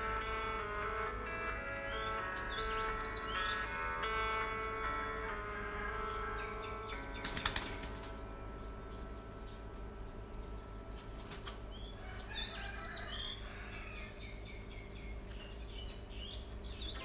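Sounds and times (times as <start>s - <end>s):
steady low hum: 0.0s - 17.0s
small birds chirping: 1.6s - 3.8s, 6.0s - 17.0s.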